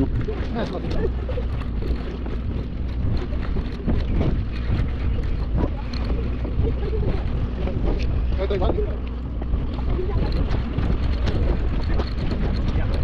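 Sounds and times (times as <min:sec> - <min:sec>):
steady low rumble: 0:00.0 - 0:13.0
wind on microphone: 0:00.0 - 0:13.0.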